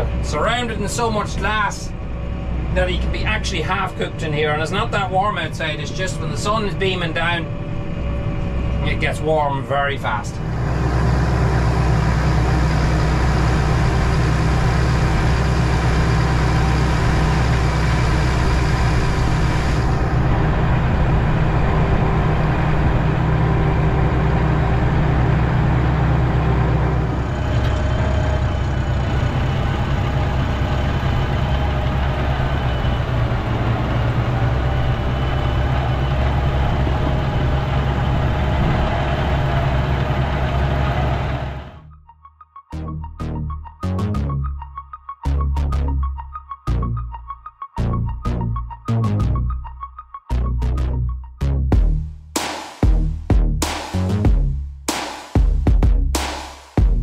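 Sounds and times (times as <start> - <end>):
tractor engine running: 0.0 - 41.8.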